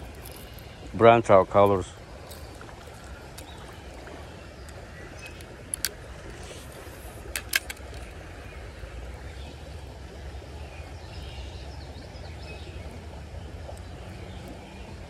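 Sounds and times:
fishing reel clicks: 5.2 - 8.1.

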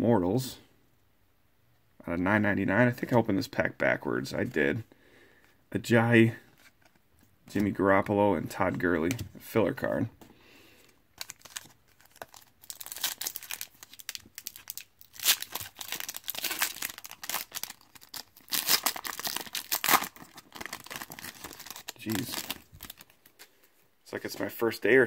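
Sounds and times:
foil wrapper crinkling: 11.2 - 23.5.

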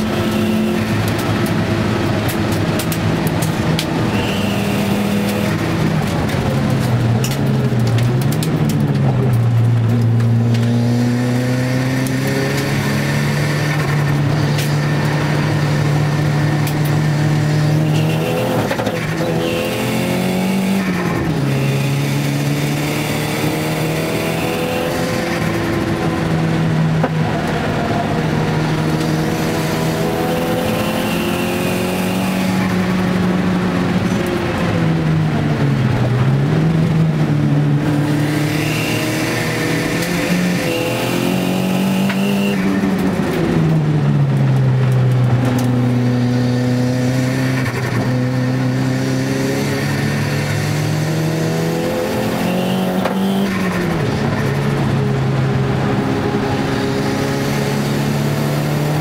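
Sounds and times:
car engine revving from cabin: 3.0 - 5.8, 9.9 - 34.1, 36.6 - 43.6, 45.2 - 53.7, 55.4 - 59.0.

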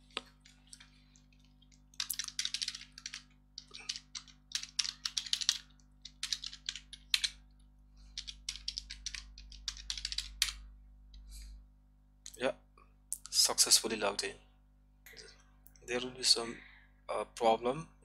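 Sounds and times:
keyboard typing: 0.1 - 7.5, 8.1 - 10.7.

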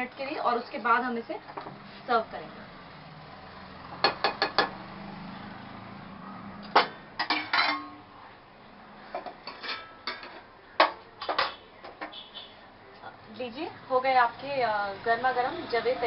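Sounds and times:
steel lid clanking: 6.7 - 8.0, 9.2 - 12.2.

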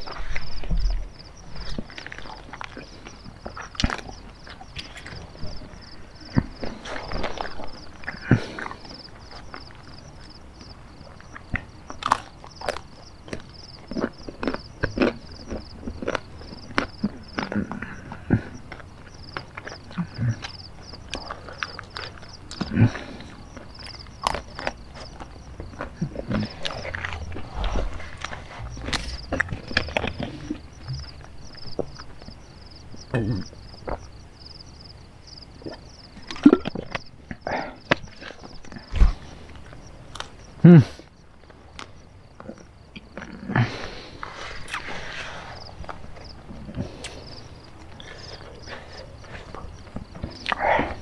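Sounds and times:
chewing with lip smacks: 0.0 - 34.2, 45.6 - 51.0
insects chirping: 0.0 - 51.0
person swallowing water: 25.7 - 32.0.

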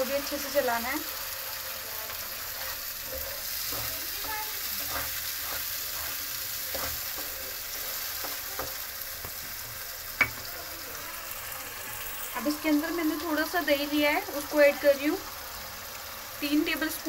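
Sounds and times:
masala sizzling in oil: 0.0 - 17.0
spatula scraping pan: 1.1 - 8.8.

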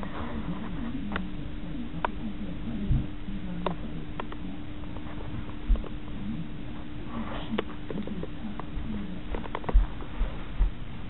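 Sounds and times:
low hum: 0.0 - 11.0
kitten paws tapping on a mat: 7.4 - 10.8.

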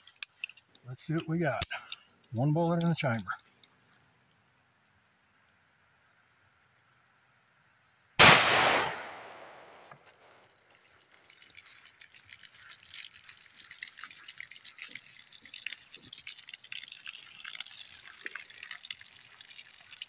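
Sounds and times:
water splashing and dripping: 0.0 - 20.0
pistol shot: 8.2 - 9.9.

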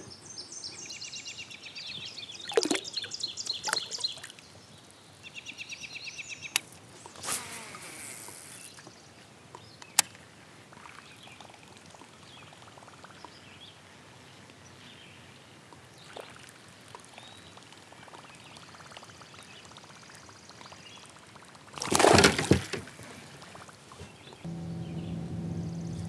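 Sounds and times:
faint lake ambience: 0.0 - 26.0
fish splashing in water: 21.6 - 22.9.

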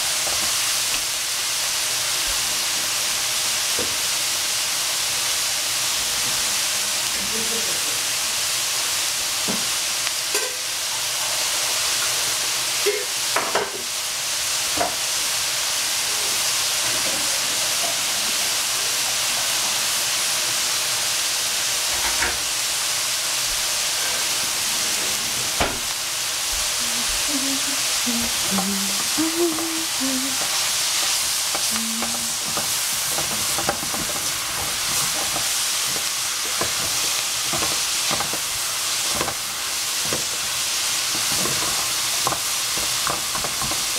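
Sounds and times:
food sizzling in a pan: 0.0 - 43.9
wooden spatula stirring food: 28.2 - 43.9.

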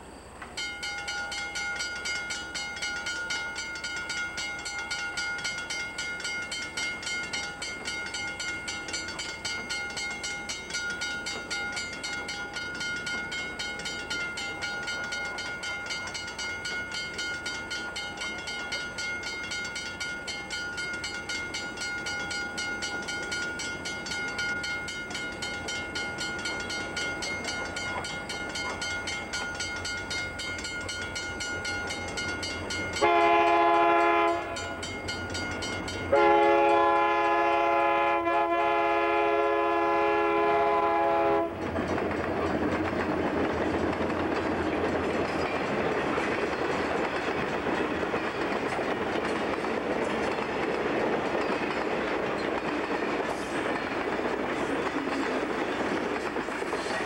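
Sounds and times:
railroad crossing bell ringing: 0.0 - 57.0.

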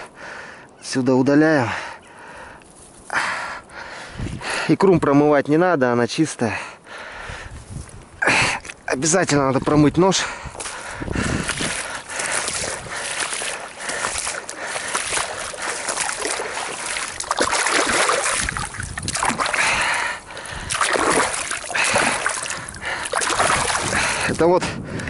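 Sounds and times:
water splashing and sloshing: 7.8 - 25.0.

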